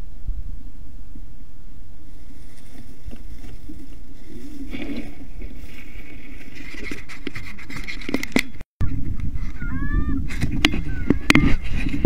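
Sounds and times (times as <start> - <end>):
rustling: 1.8 - 8.6
wind buffeting microphone: 1.8 - 12.0.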